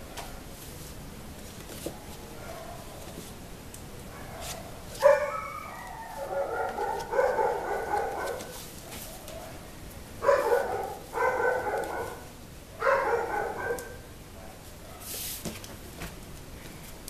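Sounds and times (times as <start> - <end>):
dog barking: 2.4 - 2.9, 4.1 - 9.6, 10.2 - 15.1
foam sheet rustling: 4.4 - 9.4.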